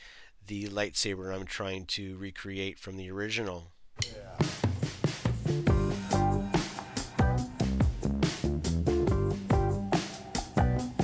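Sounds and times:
upbeat instrumental music: 0:04.0 - 0:11.0.

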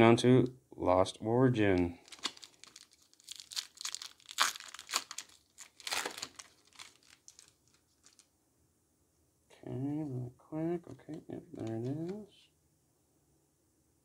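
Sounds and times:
foil wrapper crinkling and tearing: 0:02.0 - 0:08.3.

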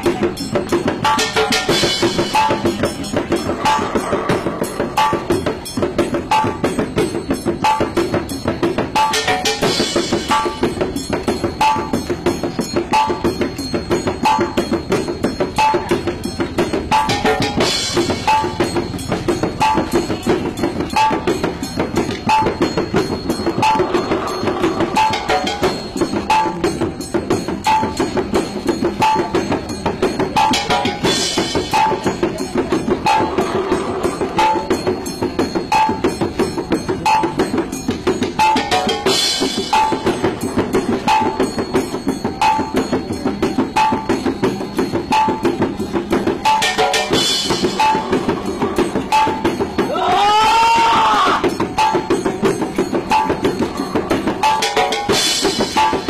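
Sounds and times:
bell-like stroke: 0:00.0 - 0:49.9.

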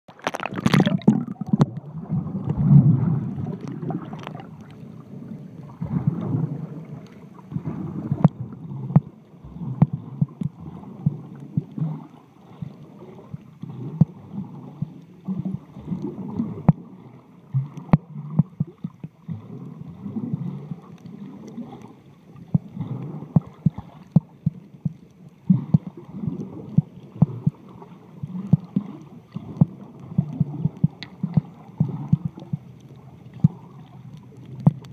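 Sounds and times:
sharp underwater clicks: 0:00.1 - 0:01.8, 0:28.4 - 0:34.9
underwater rushing water: 0:00.1 - 0:34.9.

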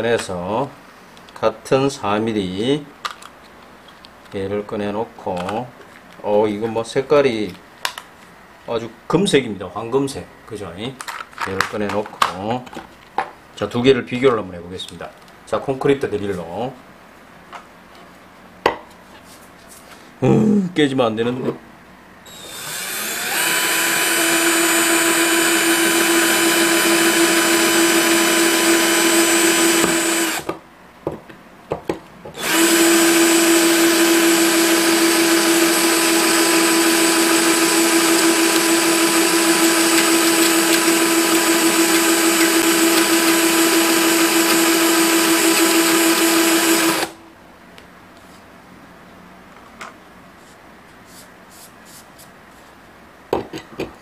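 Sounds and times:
drill clicks: 0:22.3 - 0:30.5, 0:32.4 - 0:47.2
power drill boring into tile: 0:22.3 - 0:30.5, 0:32.4 - 0:47.2.

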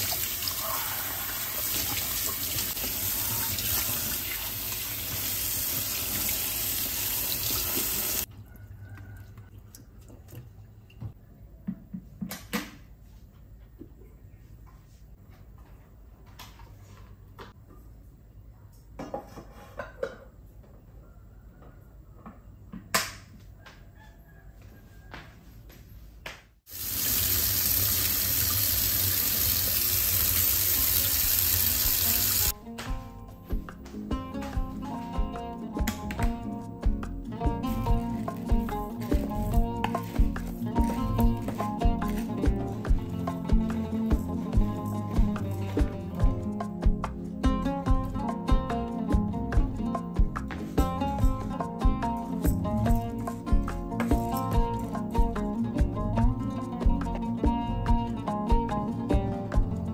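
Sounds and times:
tap water running into a sink: 0:00.0 - 0:08.3, 0:26.7 - 0:32.5
soft background music: 0:31.8 - 0:59.9.

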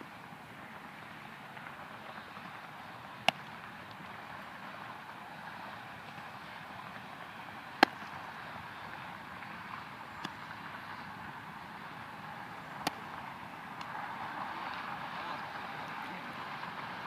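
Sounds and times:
outdoor wind hiss: 0:00.0 - 0:17.0
baseball smacking into leather glove: 0:03.2 - 0:03.6, 0:07.8 - 0:08.2, 0:12.8 - 0:13.1.

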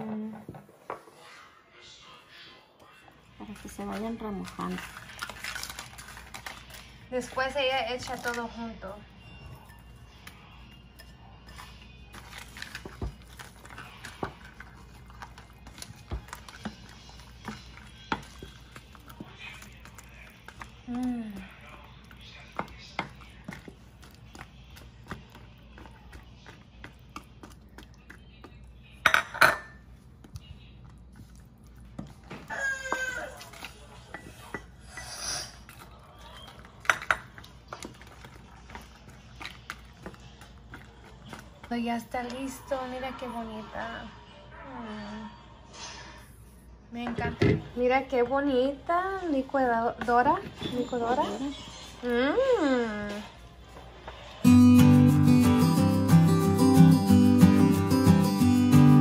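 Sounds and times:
wooden spoon stirring in pot: 0:03.0 - 0:44.1.

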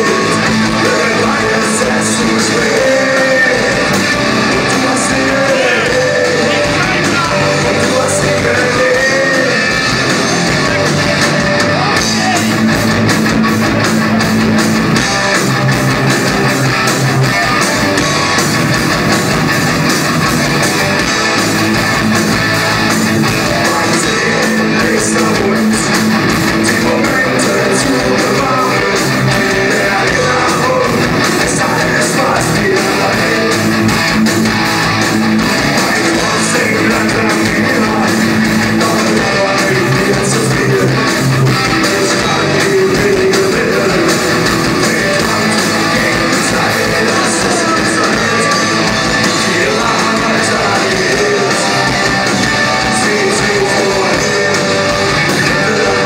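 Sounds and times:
person singing: 0:00.0 - 0:12.7, 0:23.3 - 0:33.9, 0:35.6 - 0:56.0
drums: 0:00.0 - 0:56.0
electric guitars: 0:00.0 - 0:56.0.

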